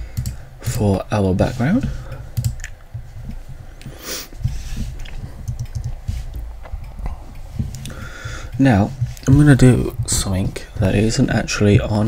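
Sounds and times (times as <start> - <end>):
keyboard keys clicking: 2.3 - 2.8, 5.0 - 6.0.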